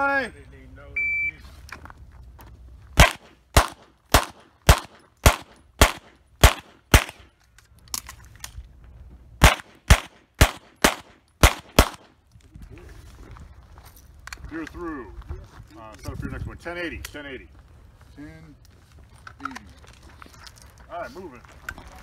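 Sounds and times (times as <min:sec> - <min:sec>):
pistol shots: 0:03.0 - 0:07.3, 0:09.4 - 0:12.1.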